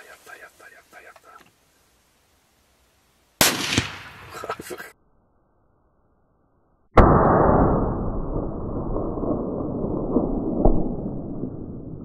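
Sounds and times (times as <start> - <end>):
rifle shot: 3.4 - 4.4, 7.0 - 11.4.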